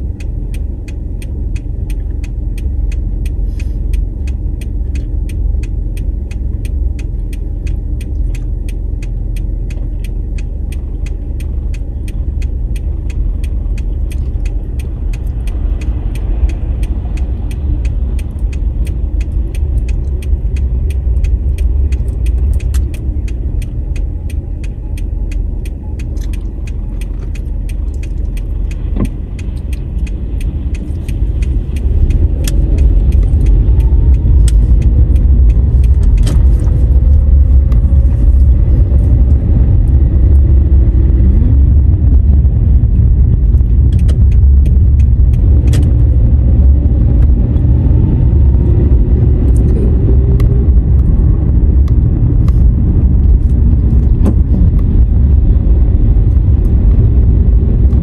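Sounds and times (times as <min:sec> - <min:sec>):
car engine and road noise: 0:00.0 - 0:58.0
small clicks and rattles: 0:00.2 - 0:40.6.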